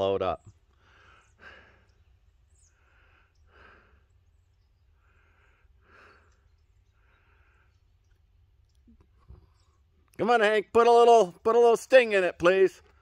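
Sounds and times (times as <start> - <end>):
soft breathing: 2.6 - 8.2.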